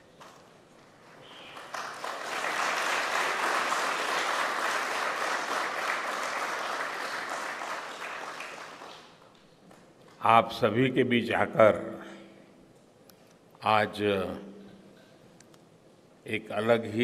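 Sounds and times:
audience applauding: 0:01.0 - 0:09.3.

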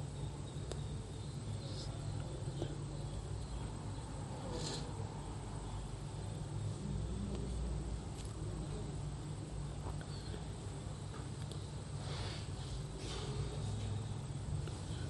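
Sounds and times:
low electrical hum and hiss: 0:00.0 - 0:15.0.

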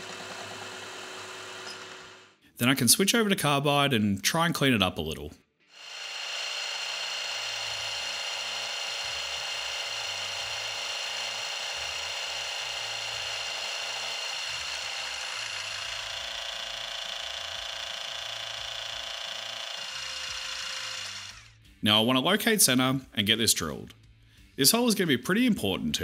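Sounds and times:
milling machine cutting steel: 0:00.0 - 0:02.2, 0:05.8 - 0:21.5.

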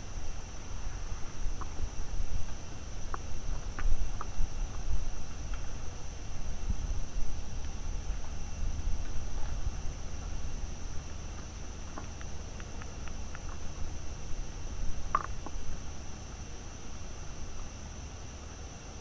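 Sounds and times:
crickets trilling: 0:00.0 - 0:19.0
faint ticks: 0:07.6 - 0:16.5.

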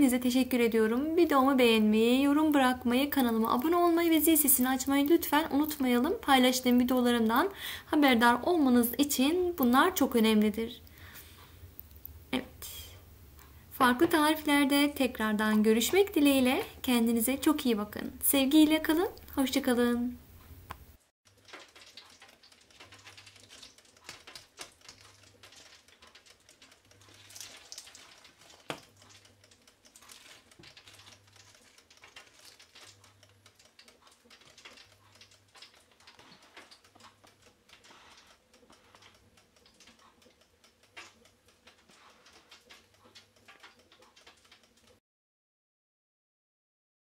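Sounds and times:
clicks and crackles of fried chicken: 0:20.8 - 0:45.0.

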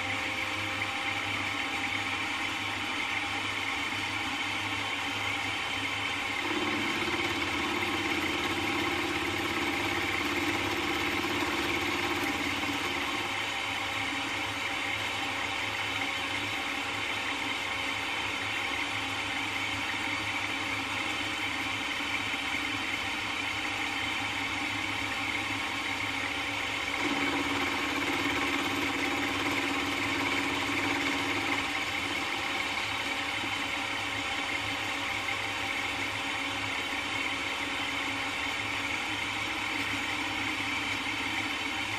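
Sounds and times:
milling machine cutting aluminum: 0:06.4 - 0:13.5, 0:27.0 - 0:33.1.

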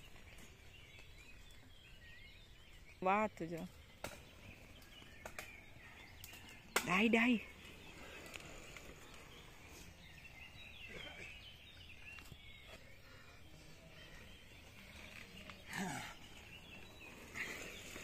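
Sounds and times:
faint birdsong: 0:00.0 - 0:18.0.

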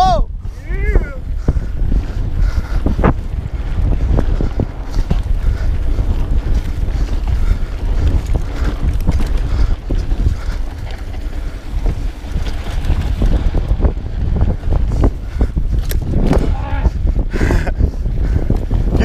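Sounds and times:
wind buffeting microphone: 0:00.0 - 0:19.0
bike knocks and rattles: 0:01.5 - 0:16.8.

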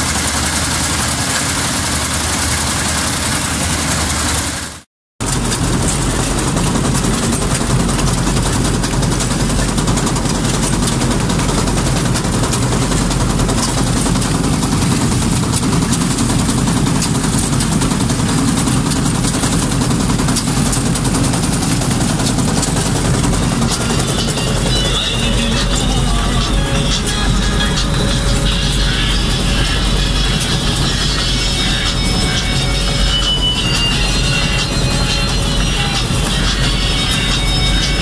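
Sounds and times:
combine harvester engine hum: 0:00.0 - 0:38.0
harvester header rattling: 0:00.0 - 0:38.0.

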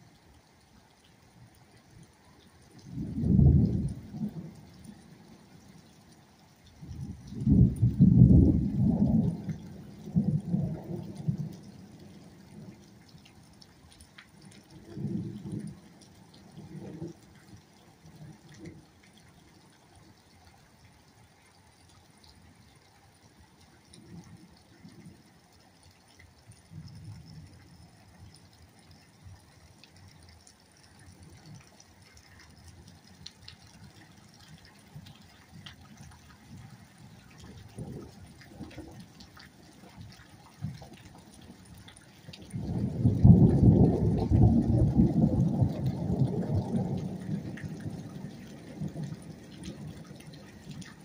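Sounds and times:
faint rain ticking: 0:00.0 - 0:51.0
wind gusts rumbling: 0:06.8 - 0:12.4, 0:42.4 - 0:51.0.

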